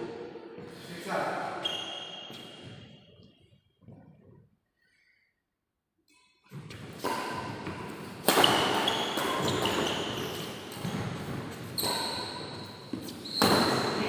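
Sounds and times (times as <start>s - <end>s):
shoe squeaks: 1.6s - 3.3s, 8.4s - 14.0s
racket hits: 6.5s - 14.0s.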